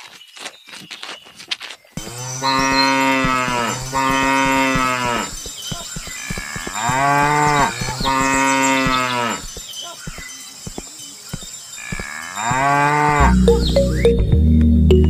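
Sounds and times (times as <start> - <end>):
cattle mooing: 2.0 - 5.4, 6.4 - 9.5, 11.8 - 13.4.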